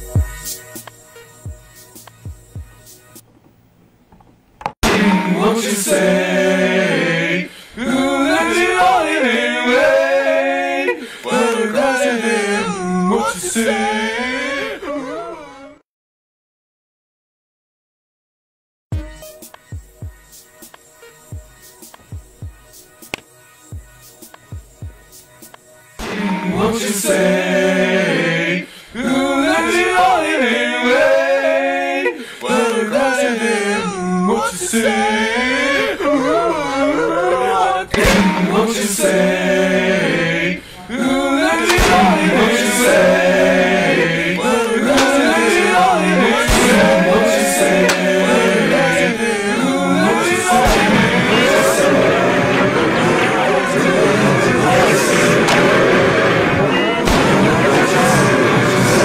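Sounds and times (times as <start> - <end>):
person singing unaccompanied: 4.8 - 15.8, 26.0 - 55.7
man singing unaccompanied: 40.8 - 52.0.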